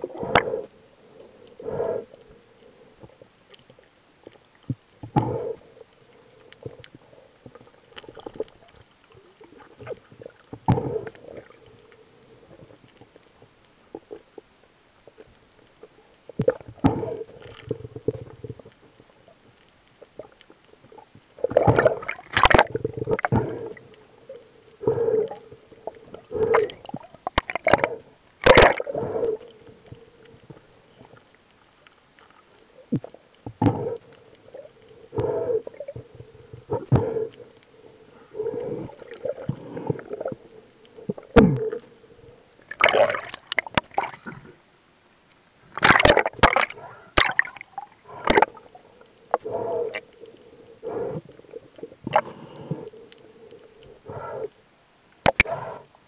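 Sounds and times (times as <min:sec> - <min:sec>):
water sloshing and gurgling: 0:00.0 - 0:44.7, 0:45.5 - 0:54.6
faint steady hum: 0:00.0 - 0:56.0.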